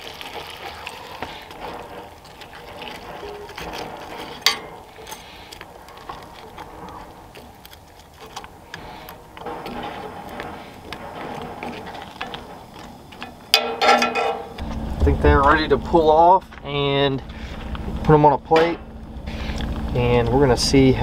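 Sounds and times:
sauce simmering: 0:00.0 - 0:13.6
utensil scraping cast iron skillet: 0:00.0 - 0:20.0.

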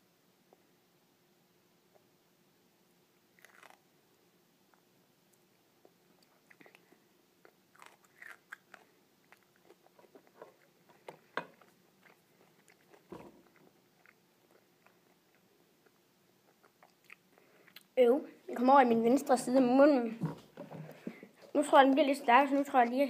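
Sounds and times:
chewing with small crunches: 0:03.4 - 0:03.9, 0:04.7 - 0:18.0.

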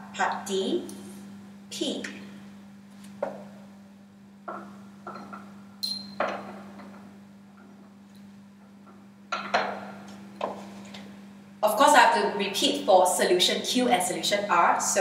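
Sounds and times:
glass test tubes clinking: 0:05.1 - 0:06.3.

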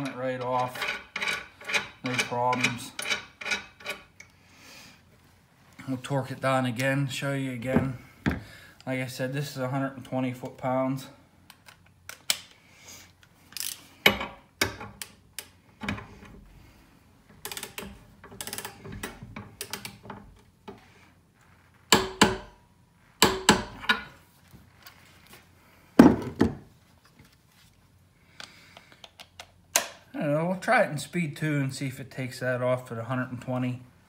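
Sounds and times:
torque wrench ratcheting: 0:17.4 - 0:18.9.

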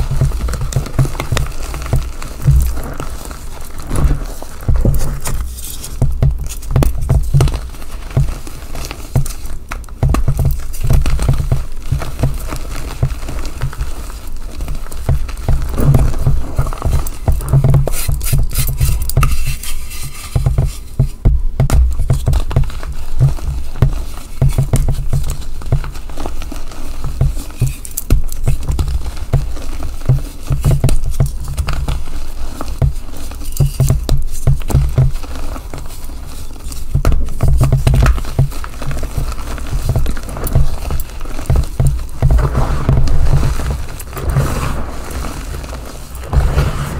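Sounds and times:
soft thuds: 0:00.0 - 0:03.3, 0:20.3 - 0:26.0
chalk crunching in hands: 0:12.4 - 0:21.2.

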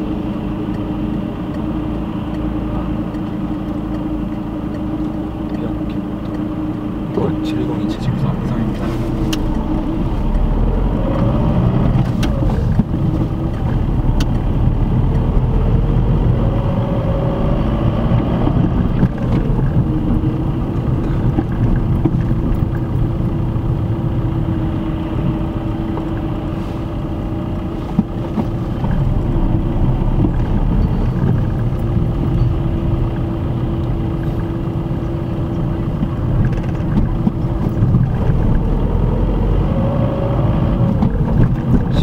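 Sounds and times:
car engine and tyre rumble: 0:00.0 - 0:42.0.

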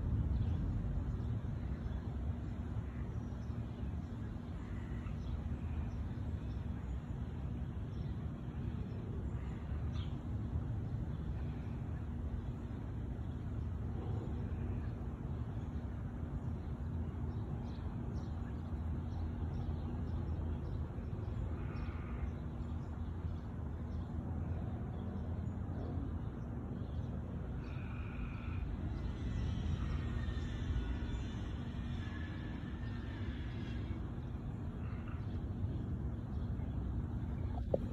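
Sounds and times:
faint hum: 0:00.0 - 0:37.9
low rumble: 0:37.3 - 0:37.9.

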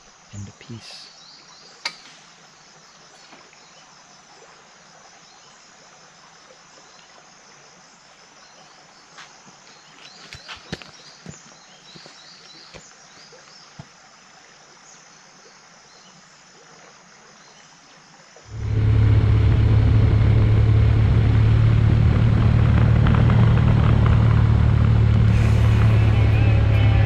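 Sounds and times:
faint insect chirping: 0:00.0 - 0:19.1
motorcycle engine cruising: 0:18.5 - 0:27.0.

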